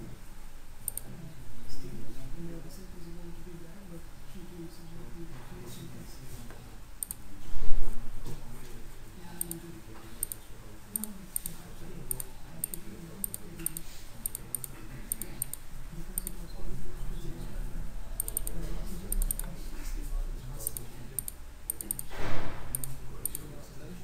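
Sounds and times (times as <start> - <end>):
sharp computer mouse clicks: 0.8 - 1.1, 7.0 - 7.2, 9.4 - 9.6, 10.2 - 15.6, 16.2 - 16.4, 18.2 - 19.5, 20.6 - 22.1, 22.7 - 23.5
loud thump: 22.1 - 22.7.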